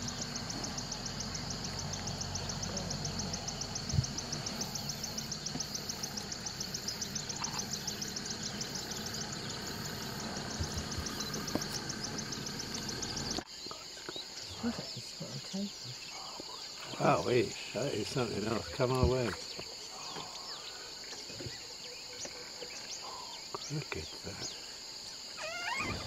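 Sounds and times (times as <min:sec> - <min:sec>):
high even chirping: 0:00.0 - 0:13.4
vehicle engine idling: 0:00.0 - 0:13.4.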